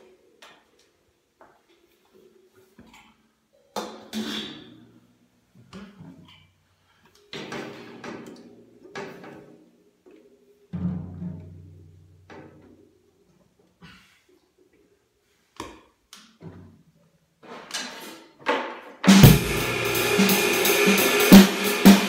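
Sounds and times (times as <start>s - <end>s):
cymbal strikes: 19.1s - 22.0s
drum hits: 19.1s - 22.0s.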